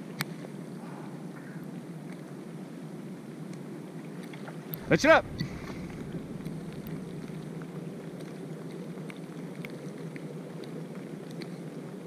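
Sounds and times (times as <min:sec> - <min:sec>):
light rain: 0:00.0 - 0:12.0
faint raindrop ticks: 0:05.4 - 0:12.0.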